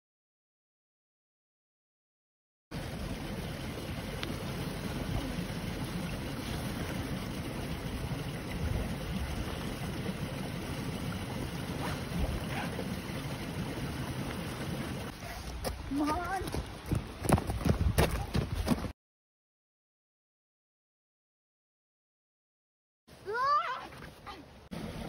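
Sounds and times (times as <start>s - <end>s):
wind buffeting microphone: 15.5s - 18.9s.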